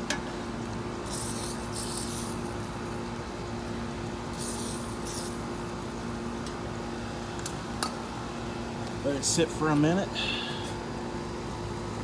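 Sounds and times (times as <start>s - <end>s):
steady low hum: 0.0s - 12.0s
aerosol spray hissing: 1.0s - 2.5s, 4.4s - 5.4s.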